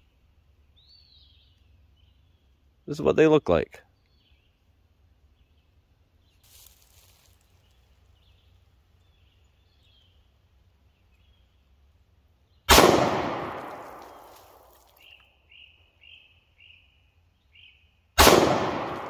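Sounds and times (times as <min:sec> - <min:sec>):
pistol shot echoing: 0:12.7 - 0:14.3, 0:18.2 - 0:19.0.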